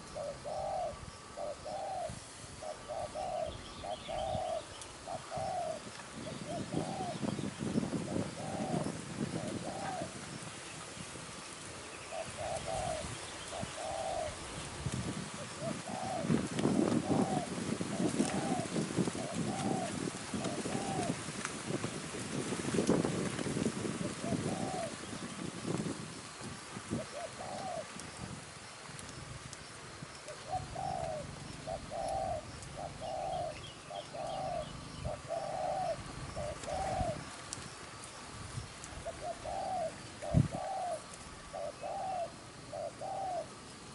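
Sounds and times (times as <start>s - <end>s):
dove cooing: 0.0s - 10.4s, 11.8s - 21.2s, 24.0s - 25.2s, 26.9s - 28.3s, 30.2s - 37.4s, 38.9s - 43.6s
small birds chirping: 0.0s - 11.2s, 11.8s - 14.4s, 26.6s - 43.5s
low rustling noise: 4.4s - 43.9s.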